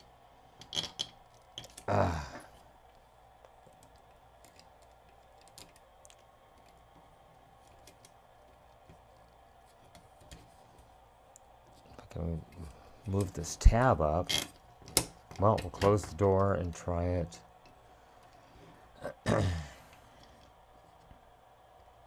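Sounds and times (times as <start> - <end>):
small plastic parts clicking: 0.6 - 1.9, 2.9 - 7.0.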